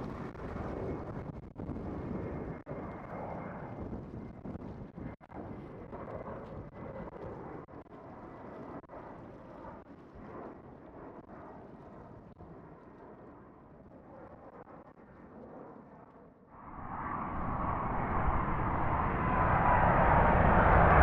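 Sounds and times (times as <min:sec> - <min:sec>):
jet engines rumbling and whining: 0:16.5 - 0:21.0
wind on microphone: 0:16.6 - 0:21.0.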